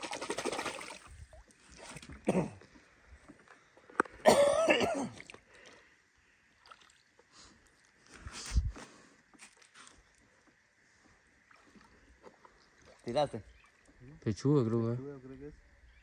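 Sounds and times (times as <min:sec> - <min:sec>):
man clearing throat: 0:02.2 - 0:02.6, 0:04.2 - 0:05.2.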